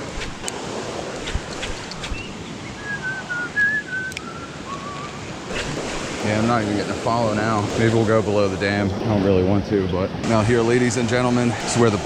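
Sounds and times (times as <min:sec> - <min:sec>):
background hiss: 0:00.0 - 0:12.0
short whistled notes: 0:02.1 - 0:05.2.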